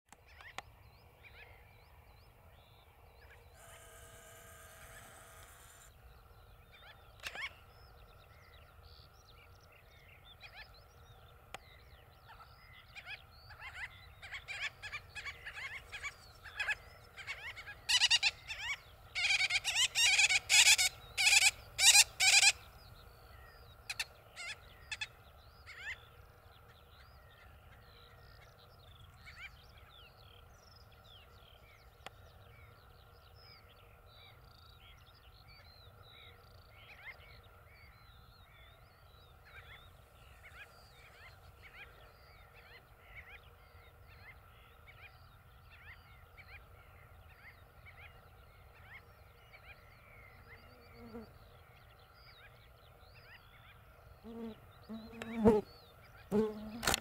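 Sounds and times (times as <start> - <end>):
sandgrouse calling: 13.6 - 22.6.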